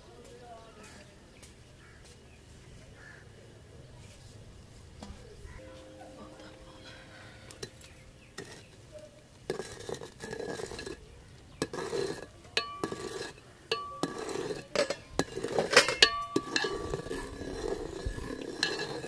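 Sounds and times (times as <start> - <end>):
wet swishing of stirring: 11.6 - 19.0
spoon knocking metal pot: 12.6 - 17.7, 18.3 - 19.0.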